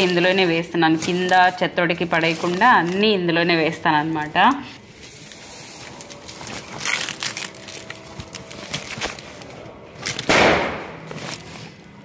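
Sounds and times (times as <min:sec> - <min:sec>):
dry leaves rustling and crackling: 0:00.0 - 0:10.4.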